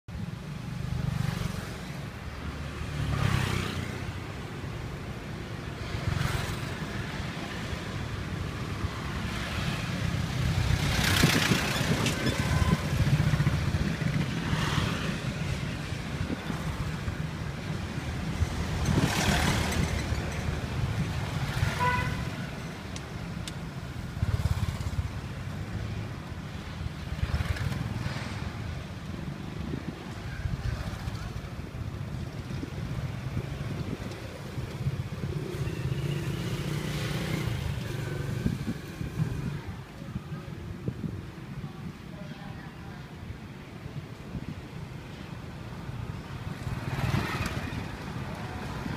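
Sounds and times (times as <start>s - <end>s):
motorbikes and cars passing: 0.1s - 48.9s
traffic engine rumble: 0.1s - 48.9s
car horn toot: 21.7s - 22.3s.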